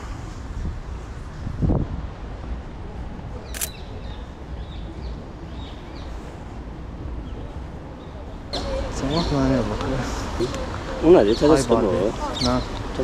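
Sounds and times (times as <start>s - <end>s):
low street rumble: 0.0s - 13.0s
sharp click: 3.5s - 3.8s.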